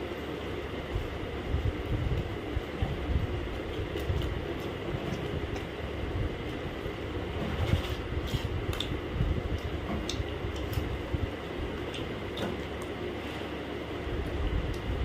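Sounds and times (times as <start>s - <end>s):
steady low hum: 0.0s - 15.0s
person chewing: 8.3s - 11.0s.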